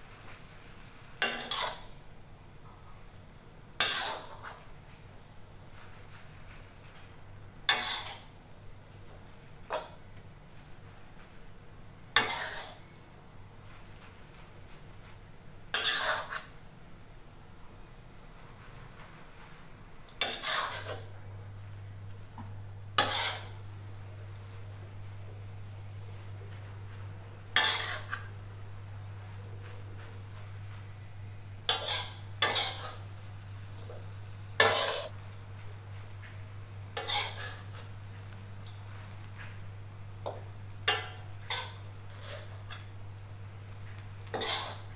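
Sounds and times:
metal spatula scraping a wok: 1.2s - 2.0s, 3.8s - 4.6s, 7.7s - 8.4s, 12.2s - 12.9s, 15.7s - 16.6s, 20.2s - 21.1s, 23.0s - 23.7s, 27.5s - 28.4s, 31.7s - 34.0s, 34.6s - 35.2s, 37.0s - 38.0s, 40.8s - 42.9s, 44.2s - 44.9s
steady low hum: 16.7s - 44.9s.

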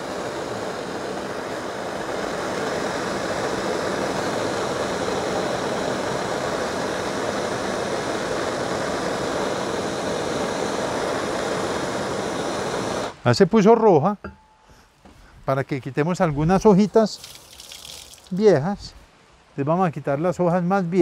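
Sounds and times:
gas torch hissing: 0.0s - 13.3s.

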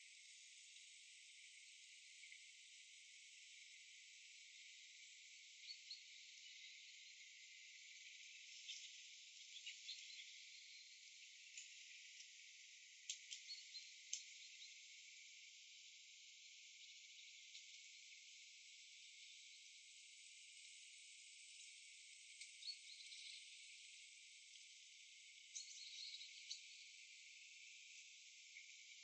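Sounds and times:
faint steady hiss: 0.0s - 29.0s
faint clicks: 11.5s - 11.8s, 13.0s - 14.3s.

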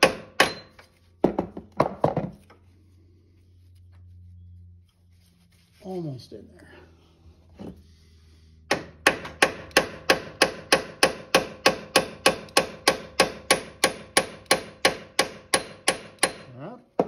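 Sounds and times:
hammer striking steel punch: 0.0s - 0.8s, 8.7s - 17.0s.

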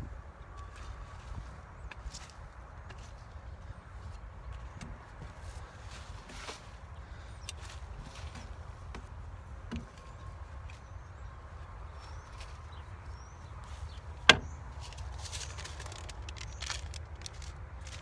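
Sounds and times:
soft rustling: 4.0s - 18.0s.

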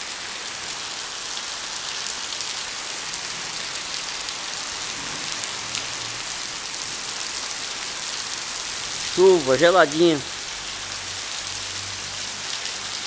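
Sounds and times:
rain pouring on pavement: 0.0s - 13.0s
raindrops ticking: 9.0s - 13.0s.

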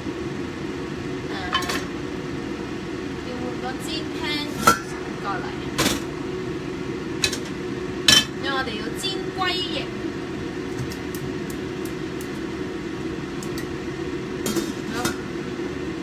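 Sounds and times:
steady hum: 0.0s - 16.0s
frying pan clanking on grate: 7.2s - 8.4s, 14.4s - 15.2s.

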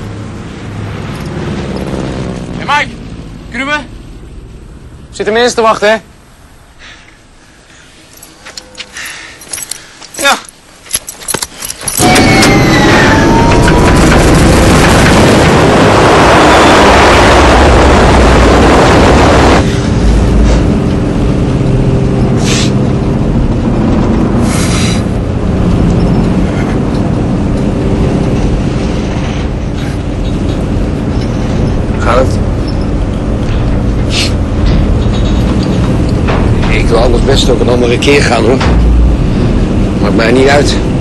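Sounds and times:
propeller aircraft engine: 13.5s - 36.7s.

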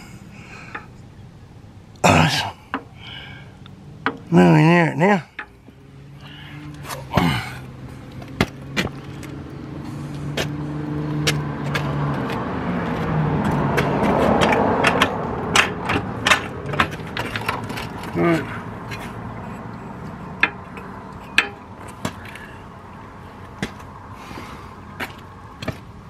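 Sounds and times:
motor vehicle running: 0.0s - 26.0s
sharp clicks and knocks: 4.0s - 4.3s, 11.2s - 18.2s, 18.8s - 22.4s.

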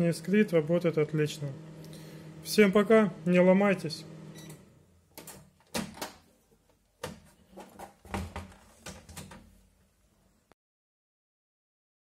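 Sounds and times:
microwave oven humming: 0.0s - 5.0s.

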